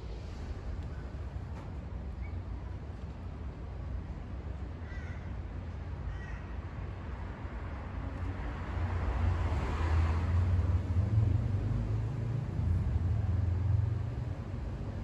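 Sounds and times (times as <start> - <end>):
low rumble: 0.0 - 2.2.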